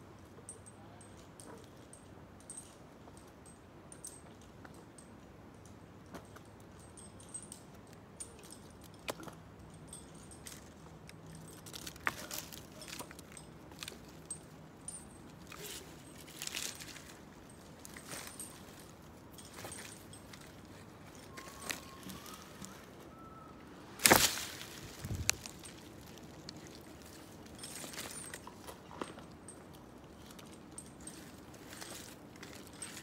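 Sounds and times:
dry twigs snapping and crackling: 8.9s - 22.8s, 23.9s - 29.3s, 30.1s - 33.0s.

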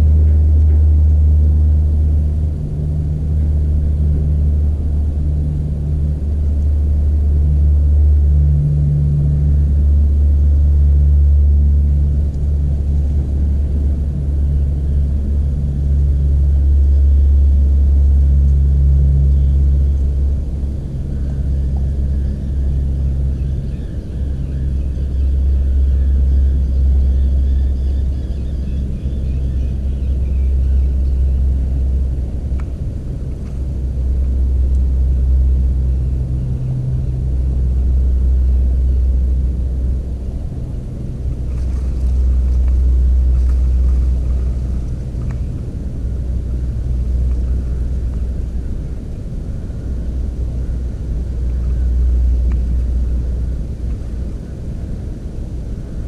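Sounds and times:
faint steady hum: 0.0s - 56.0s
loud low rumble: 0.0s - 56.0s.

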